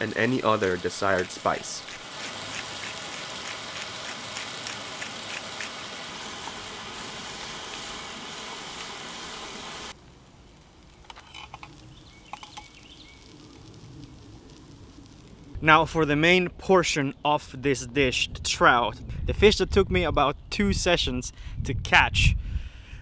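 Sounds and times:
onions sizzling in a pot: 0:00.0 - 0:15.5.

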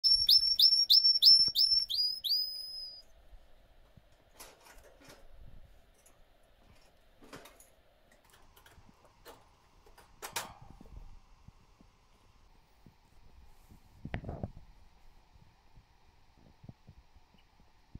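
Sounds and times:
canary singing: 0:00.0 - 0:03.0.

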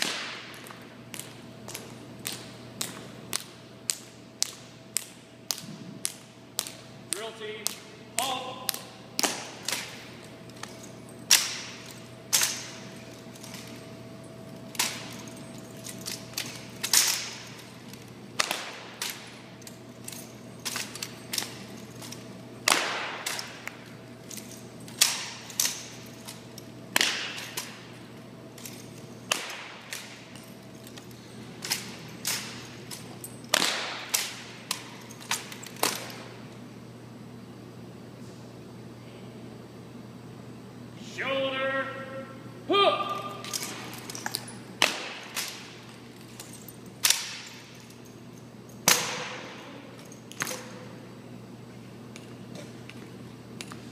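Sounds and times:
drill rifles slapped and caught: 0:08.7 - 0:10.0, 0:11.3 - 0:12.8, 0:15.9 - 0:17.6, 0:18.4 - 0:19.3, 0:20.6 - 0:23.8, 0:26.9 - 0:27.8, 0:28.6 - 0:30.4, 0:33.5 - 0:36.3, 0:43.4 - 0:45.7, 0:47.0 - 0:47.6, 0:48.8 - 0:50.9.

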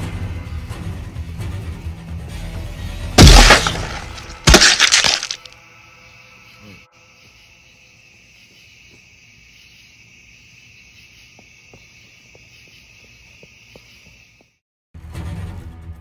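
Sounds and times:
crickets trilling: 0:03.2 - 0:14.6.

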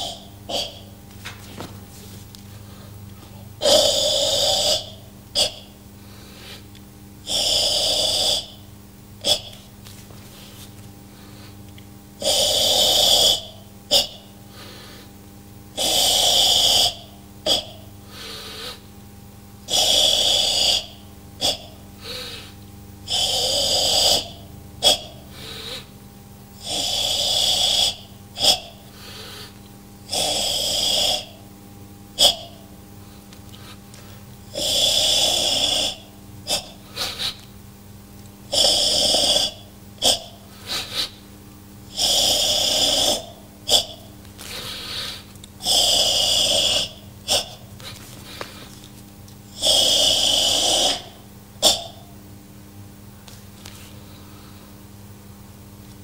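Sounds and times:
steady low hum: 0:00.0 - 0:56.0
forceful hissing exhalation: 0:02.5 - 0:06.7, 0:15.8 - 0:18.9, 0:19.7 - 0:25.9, 0:26.6 - 0:31.4, 0:32.2 - 0:37.4, 0:38.5 - 0:41.3, 0:41.9 - 0:48.8, 0:49.5 - 0:52.0.

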